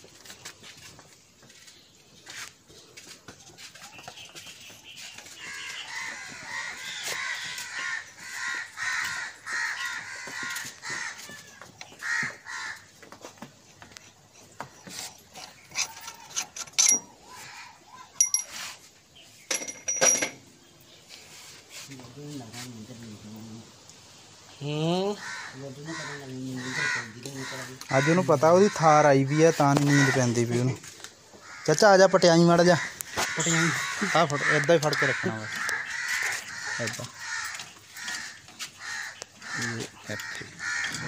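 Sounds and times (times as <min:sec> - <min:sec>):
harsh bird calls: 0:00.2 - 0:19.8, 0:24.4 - 0:41.0
metal tools clinking on engine: 0:14.8 - 0:17.2, 0:18.2 - 0:18.6, 0:19.5 - 0:20.5.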